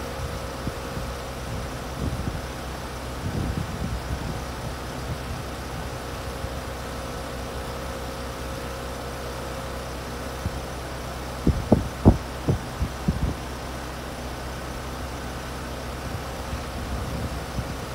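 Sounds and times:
heat pump hum: 0:00.0 - 0:17.9.

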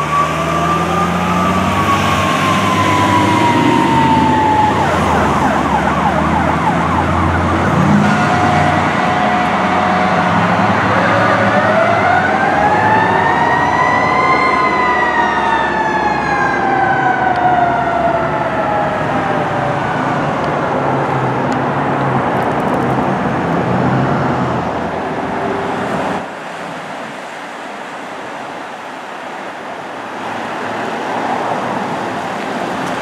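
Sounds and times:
siren wailing: 0:00.0 - 0:21.0
trucks and traffic running: 0:00.0 - 0:33.0.

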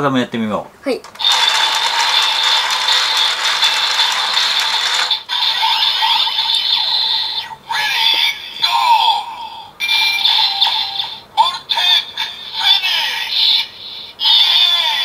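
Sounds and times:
toy crank ratcheting clatter: 0:01.0 - 0:06.8
toy electronic cranking tone: 0:01.0 - 0:07.3.

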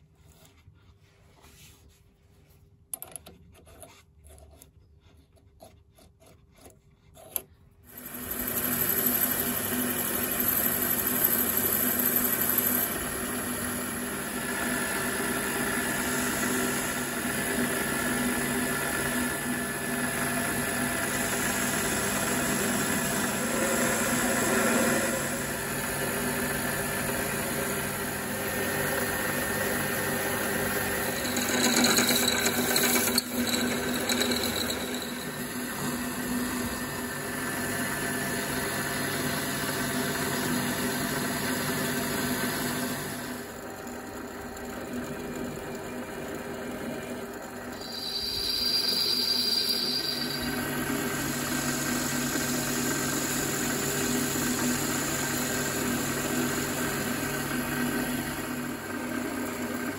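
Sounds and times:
tool cutting aluminium: 0:07.1 - 0:38.2, 0:47.8 - 0:54.7
drill boring into metal: 0:07.9 - 0:39.2, 0:47.6 - 0:59.5
lathe whining: 0:07.9 - 0:55.3.

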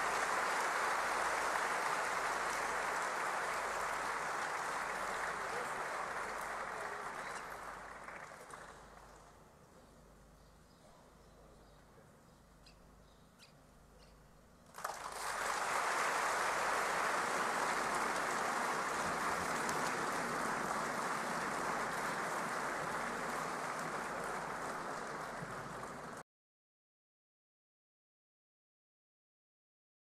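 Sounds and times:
large audience applauding: 0:00.0 - 0:09.2, 0:14.7 - 0:26.2.

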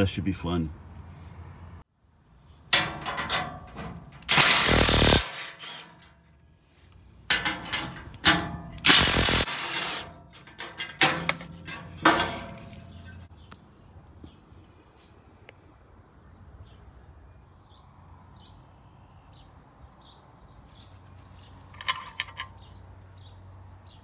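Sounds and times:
cordless driver spinning bolts: 0:04.1 - 0:06.0, 0:07.6 - 0:13.0.

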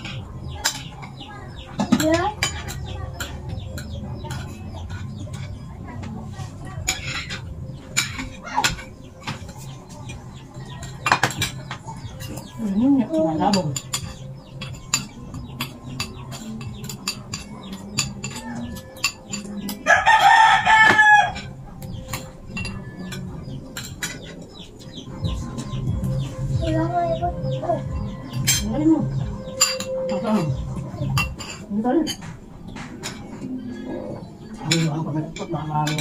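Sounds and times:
cutlery clinking on plates: 0:00.0 - 0:05.7, 0:06.9 - 0:10.2, 0:10.8 - 0:12.6, 0:13.4 - 0:25.0, 0:29.5 - 0:36.0
rooster crowing: 0:19.8 - 0:21.4.

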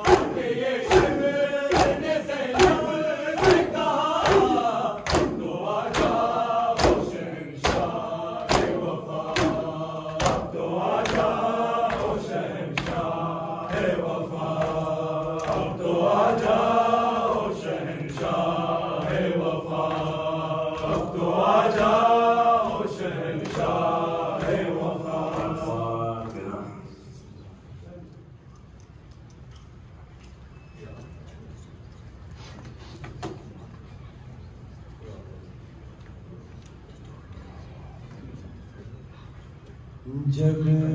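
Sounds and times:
chest-beating slaps: 0:00.0 - 0:15.8, 0:19.0 - 0:25.8
men chanting in unison: 0:00.0 - 0:27.1.

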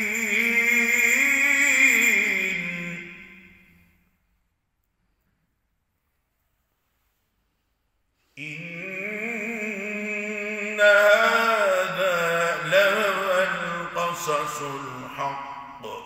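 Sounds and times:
man chanting: 0:00.0 - 0:03.9, 0:08.4 - 0:16.0.

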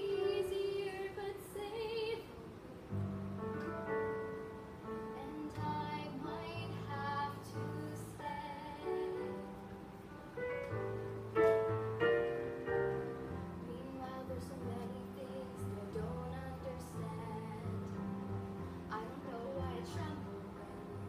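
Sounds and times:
girl singing: 0:00.0 - 0:02.7, 0:05.0 - 0:09.7, 0:13.6 - 0:18.2, 0:18.9 - 0:21.0
recorded backing track: 0:00.0 - 0:21.0.

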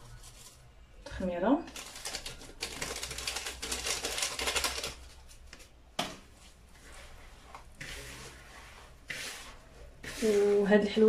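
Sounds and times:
hands rubbing dough in bowl: 0:06.4 - 0:11.0.

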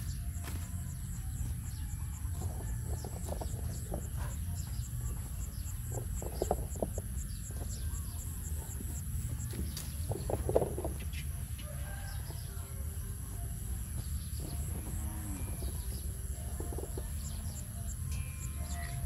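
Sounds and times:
high insect drone: 0:00.0 - 0:19.0.

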